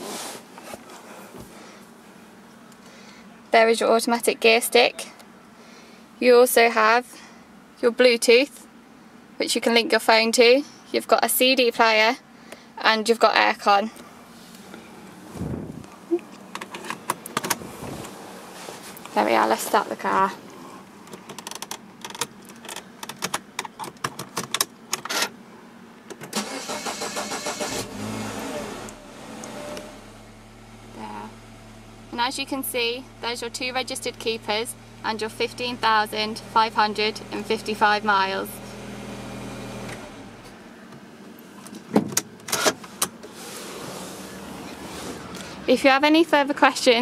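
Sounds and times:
car engine cranking and starting: 0:14.0 - 0:25.4, 0:26.0 - 0:40.7, 0:41.4 - 0:46.0
car door clicks and knocks: 0:16.4 - 0:17.6, 0:41.8 - 0:43.2.

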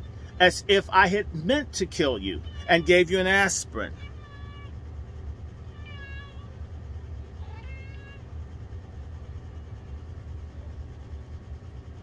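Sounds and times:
steady low hum: 0:00.0 - 0:12.0
cat meowing: 0:02.4 - 0:03.1, 0:03.9 - 0:04.8, 0:05.6 - 0:06.6, 0:07.4 - 0:08.3.

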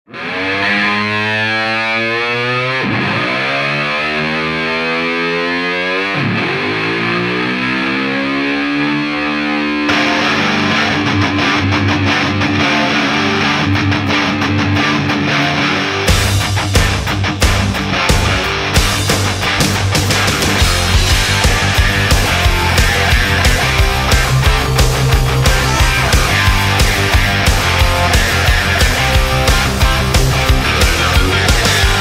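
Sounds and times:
distorted electric guitar chords: 0:00.0 - 0:32.0
rock band playing: 0:00.1 - 0:32.0
drums: 0:16.0 - 0:32.0.

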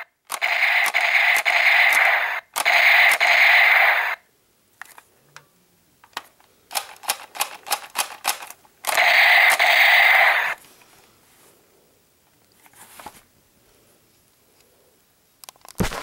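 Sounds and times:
toy pistol trigger clicks: 0:00.3 - 0:03.5, 0:06.7 - 0:10.2.

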